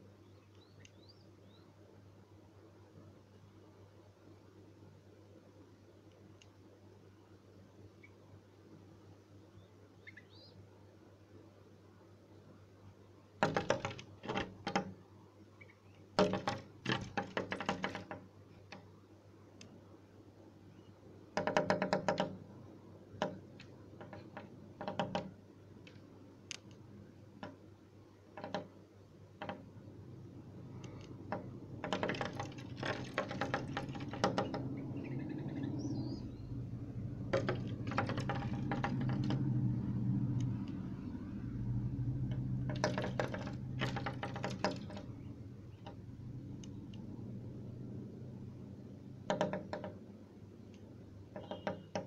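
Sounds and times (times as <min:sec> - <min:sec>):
birds tapping on window: 0:13.4 - 0:18.9, 0:20.8 - 0:27.7, 0:28.3 - 0:47.7, 0:49.0 - 0:52.0
low hum: 0:34.4 - 0:42.7, 0:45.0 - 0:49.2.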